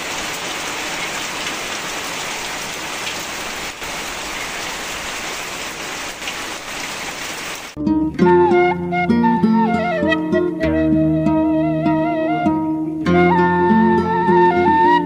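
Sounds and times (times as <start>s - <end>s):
rain falling on plants: 0.0s - 7.8s.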